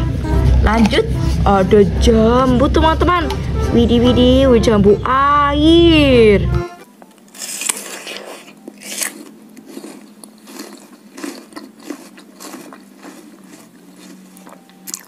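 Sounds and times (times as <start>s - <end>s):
chewing crisp fruit: 7.3s - 15.0s.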